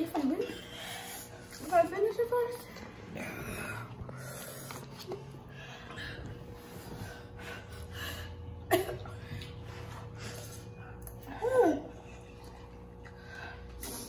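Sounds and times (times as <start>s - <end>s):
heavy breathing: 0.2s - 12.4s
person coughing: 8.6s - 9.2s.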